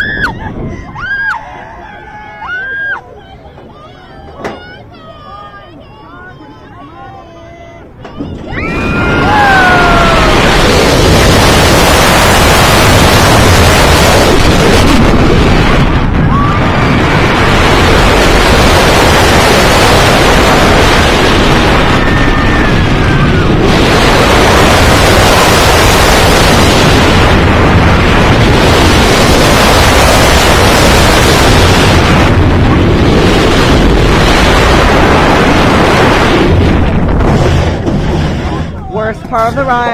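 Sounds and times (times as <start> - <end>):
wind rushing over microphone: 0.0 - 5.7, 7.8 - 39.9
roller coaster train roaring: 0.0 - 39.9.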